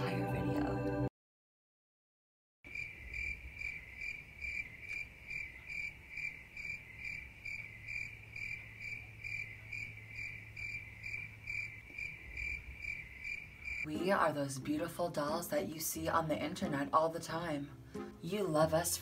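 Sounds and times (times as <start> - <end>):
cricket chirping: 2.7 - 13.9.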